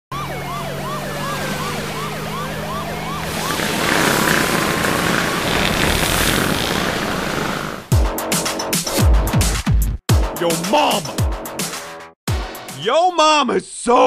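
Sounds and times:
police siren yelping: 0:00.1 - 0:03.8
car engine hum: 0:00.2 - 0:07.9
rush of noise: 0:03.3 - 0:07.9.

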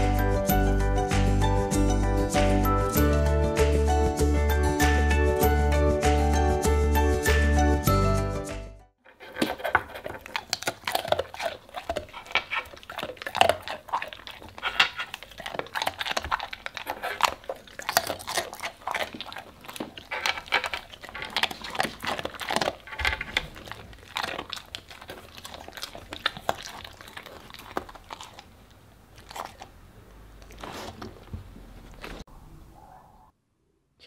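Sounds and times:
dog crunching biscuits: 0:09.1 - 0:32.2.

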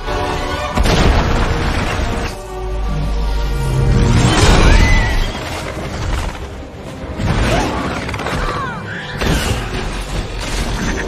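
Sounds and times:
action film music: 0:00.0 - 0:11.0.

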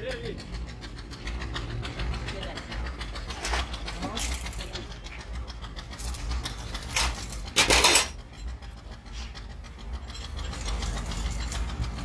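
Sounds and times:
metal parts scraping: 0:03.3 - 0:04.9, 0:05.8 - 0:12.0.

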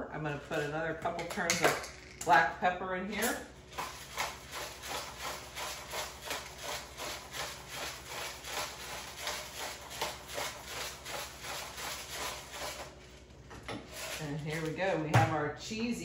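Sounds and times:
pepper mill grinding: 0:03.2 - 0:13.0, 0:13.8 - 0:14.9.

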